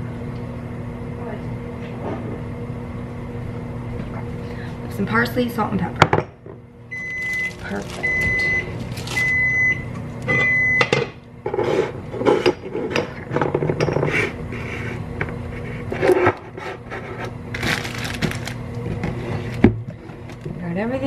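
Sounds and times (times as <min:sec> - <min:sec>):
appliance beep: 0:06.9 - 0:11.2
packages rustling and scraping: 0:07.0 - 0:09.6, 0:15.7 - 0:19.6.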